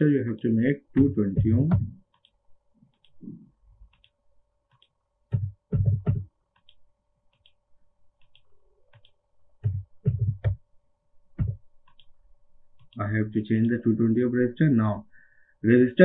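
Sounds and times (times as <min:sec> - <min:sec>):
faint steady hum: 0:00.0 - 0:16.0
mouse and keyboard clicks: 0:03.9 - 0:05.0, 0:06.6 - 0:07.6, 0:08.2 - 0:09.8, 0:11.8 - 0:12.2.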